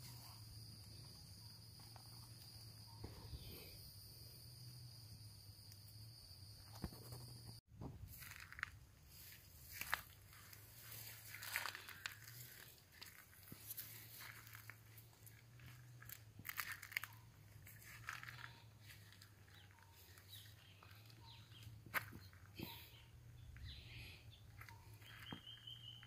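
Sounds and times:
footsteps on dry leaves: 8.1s - 22.8s.

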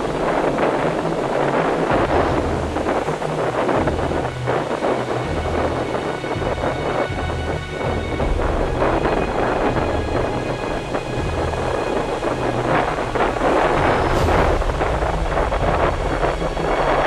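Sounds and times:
ocean surf breaking: 0.0s - 17.0s
wind buffeting microphone: 0.0s - 17.0s.

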